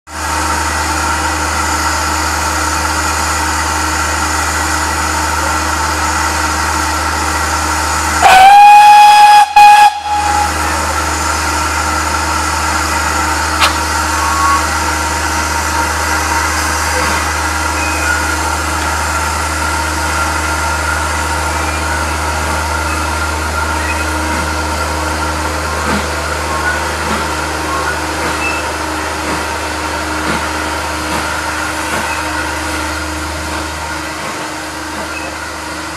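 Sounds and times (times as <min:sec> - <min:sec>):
steam hissing: 0:07.4 - 0:20.5
steam locomotive whistle: 0:08.2 - 0:11.0, 0:13.6 - 0:15.0.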